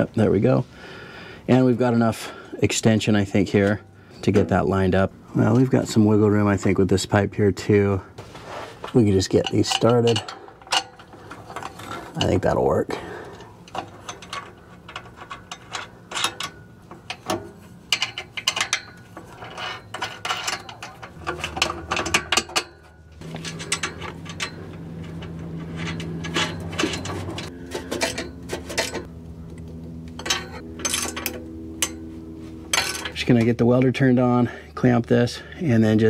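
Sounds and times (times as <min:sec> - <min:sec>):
metal parts clinking: 0:08.8 - 0:29.1, 0:30.1 - 0:32.1, 0:32.7 - 0:33.3
low engine drone: 0:20.7 - 0:36.0.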